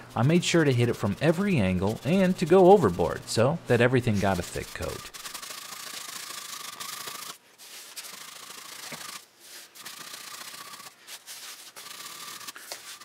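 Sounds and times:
hand pump hissing strokes: 4.1 - 13.0.

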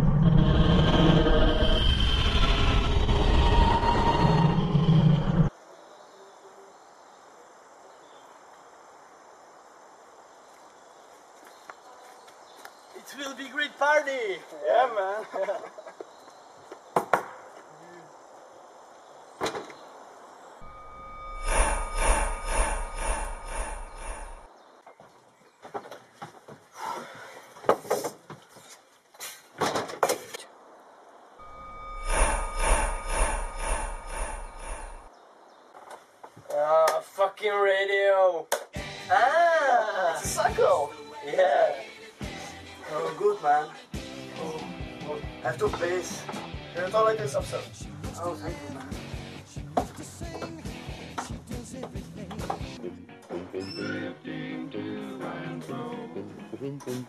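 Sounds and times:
loud rumbling noise: 0.0 - 5.5, 20.6 - 24.5, 31.4 - 35.1
faint steady hiss: 5.6 - 15.8
thin high tones: 20.6 - 24.5, 31.4 - 35.1.

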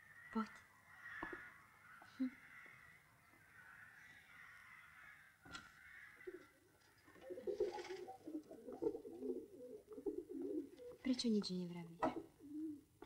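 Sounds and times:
pigeons cooing: 5.7 - 11.0, 12.0 - 13.0.

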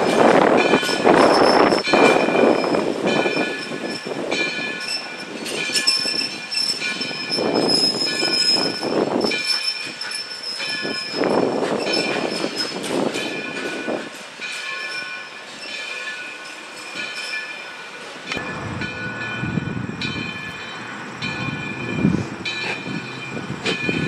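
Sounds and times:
steam locomotive exhaust: 18.3 - 24.0.

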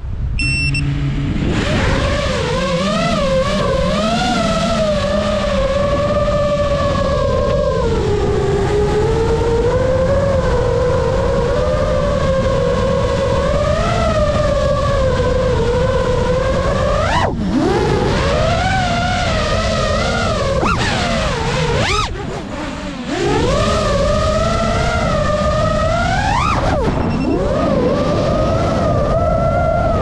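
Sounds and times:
low rumble: 0.0 - 2.6
drone propellers whining: 0.1 - 30.0.

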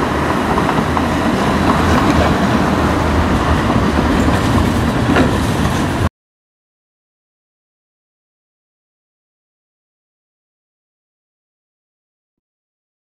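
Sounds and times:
tram wheels rumbling on rails: 0.0 - 6.1.

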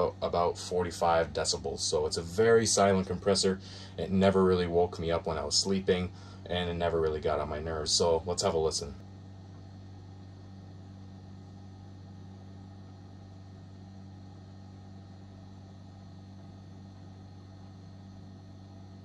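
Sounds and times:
fridge compressor humming: 0.0 - 19.0.

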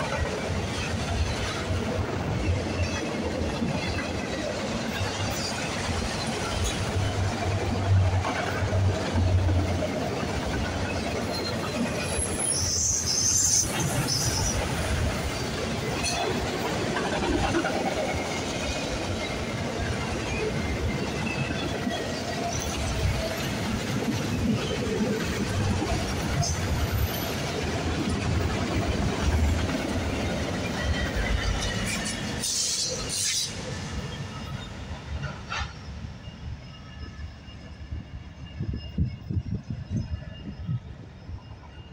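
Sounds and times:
locomotive passing: 0.0 - 41.9
train wheels rumbling on rail: 0.0 - 41.9
wheel squeal: 10.8 - 14.9.

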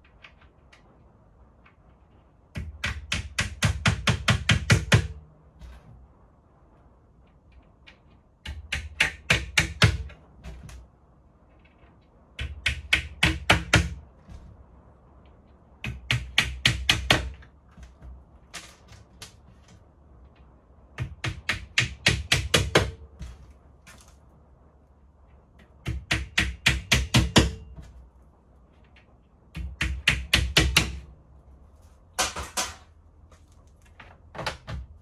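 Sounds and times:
hammer tapping nails: 2.5 - 5.9, 7.9 - 10.9, 12.4 - 14.5, 15.8 - 19.8, 21.0 - 24.1, 25.6 - 28.0, 29.5 - 31.1.

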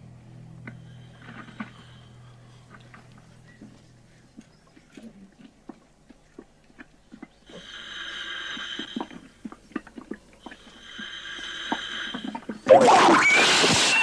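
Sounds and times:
breathy hiss: 0.8 - 2.9, 7.5 - 9.5, 10.4 - 12.7
wet squelches and clicks: 2.7 - 7.6, 8.5 - 12.7.

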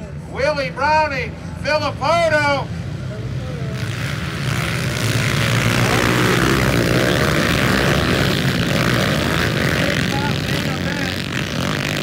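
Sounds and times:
dirt bikes racing by: 2.6 - 12.0.

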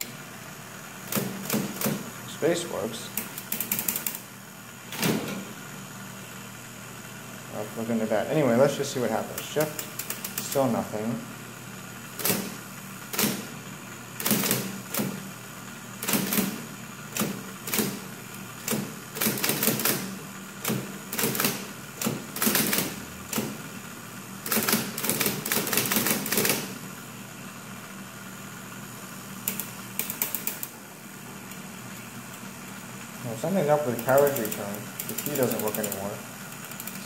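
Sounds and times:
typewriter motor hum: 0.0 - 5.6, 7.5 - 27.1, 29.2 - 30.8, 31.4 - 37.0
electric typewriter keystrokes: 1.0 - 2.1, 3.1 - 4.3, 9.3 - 10.7, 12.2 - 13.5, 14.2 - 15.3, 16.0 - 23.6, 24.4 - 26.8, 29.4 - 30.8, 33.7 - 37.0.

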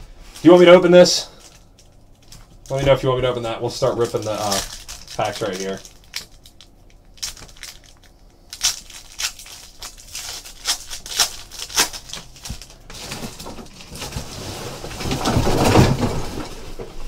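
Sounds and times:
foil packs tearing and crinkling: 0.4 - 16.6.

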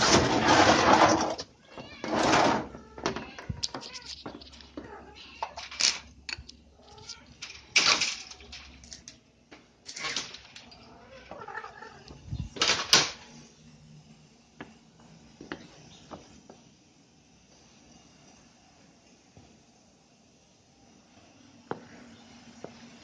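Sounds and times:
cat meowing: 1.6 - 5.7, 10.8 - 12.2.

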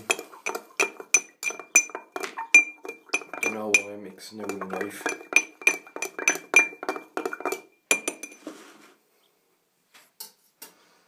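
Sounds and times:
knife clinking against glass: 0.1 - 8.4.

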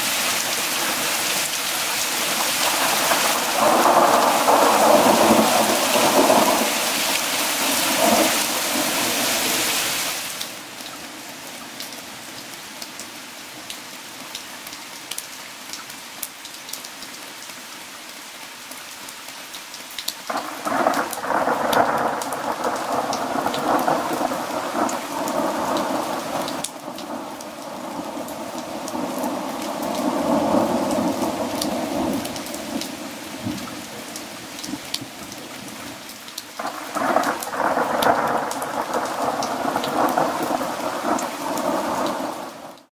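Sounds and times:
rain pouring: 0.0 - 42.9
thunder rolling: 2.6 - 6.8.

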